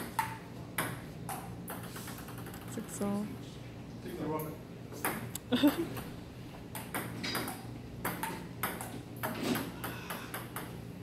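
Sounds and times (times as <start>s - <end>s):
ping-pong ball clicking: 6.7s - 10.8s.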